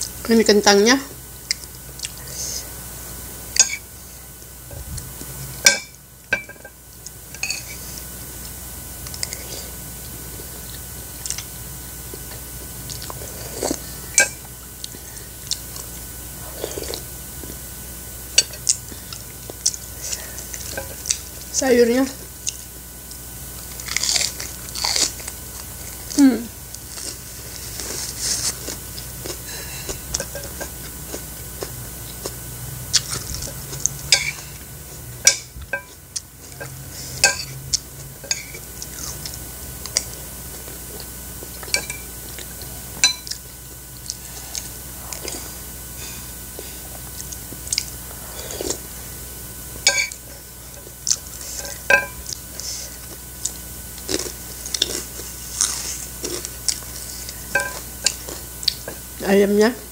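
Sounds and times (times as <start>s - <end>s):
chewing: 12.1s - 13.8s, 22.4s - 33.9s, 46.5s - 48.9s, 50.1s - 59.0s.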